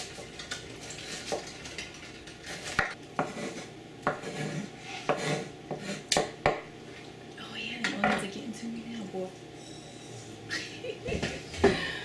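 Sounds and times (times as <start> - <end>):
knife chopping on wooden board: 2.7 - 6.7.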